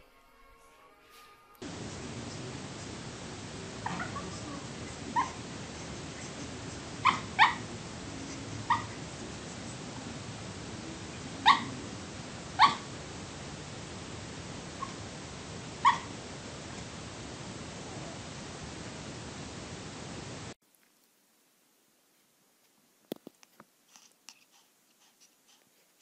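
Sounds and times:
puppy yipping: 3.8 - 5.4, 7.0 - 7.7, 8.6 - 9.0, 11.4 - 11.8, 12.6 - 12.9, 15.8 - 16.1.

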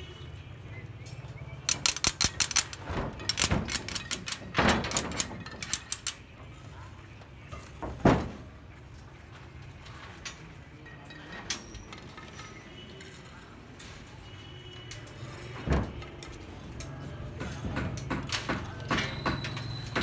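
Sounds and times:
rebar and wire clinking: 1.7 - 6.3, 10.2 - 13.4.

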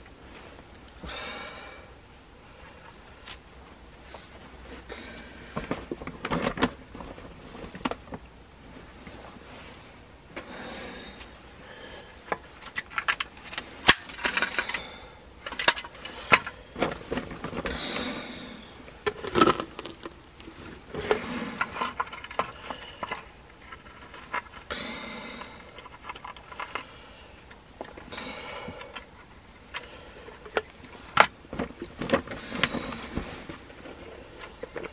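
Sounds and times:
traps scraping and rattling: 18.8 - 24.7.

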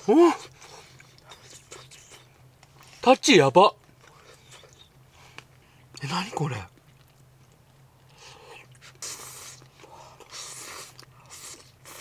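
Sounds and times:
faint steady low hum: 0.0 - 12.0
noodles being slurped: 8.7 - 12.0.

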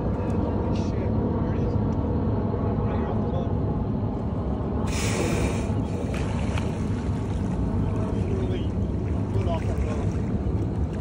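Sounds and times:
steady low rumble: 0.0 - 11.0
whale exhaling whoosh: 4.8 - 6.2.

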